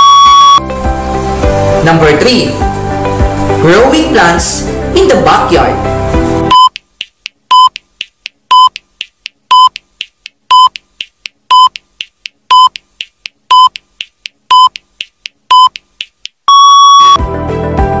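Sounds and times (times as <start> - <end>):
longer higher beep: 0.0 - 0.6, 16.5 - 17.2
short electronic beeps: 16.5 - 17.2.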